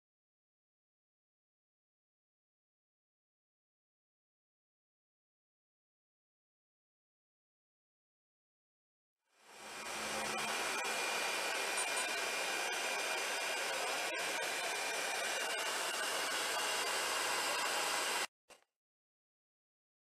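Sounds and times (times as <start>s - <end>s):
fan-like air rushing with whine: 9.5s - 18.3s.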